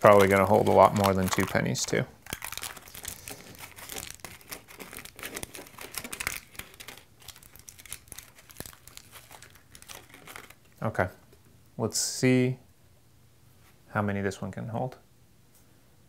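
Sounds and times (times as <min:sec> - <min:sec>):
aluminium foil crinkling: 0:00.0 - 0:10.8.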